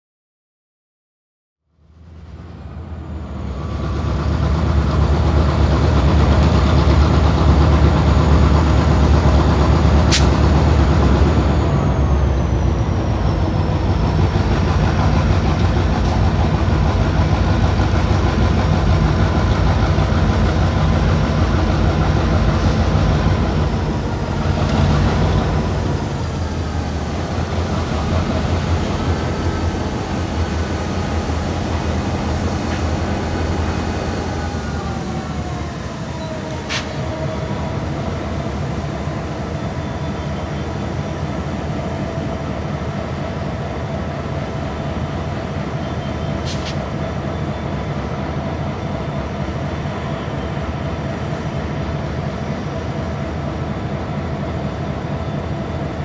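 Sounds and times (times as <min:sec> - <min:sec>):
diesel locomotive engines rumbling: 0:01.8 - 0:56.0
sharp click: 0:10.1 - 0:10.4.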